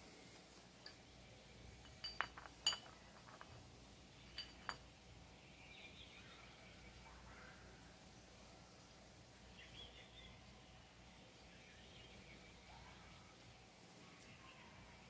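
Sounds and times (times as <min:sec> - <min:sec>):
metal parts clinking: 0:01.8 - 0:03.6, 0:04.3 - 0:04.9.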